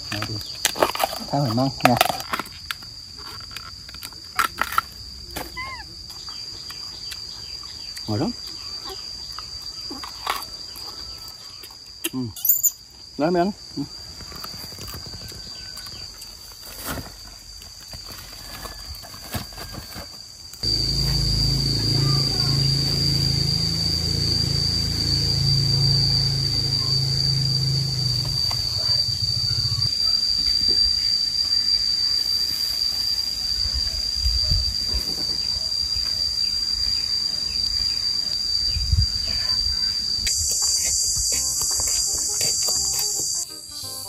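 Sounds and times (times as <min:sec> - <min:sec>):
cicadas droning: 0:00.0 - 0:44.0
low hum: 0:20.6 - 0:31.0.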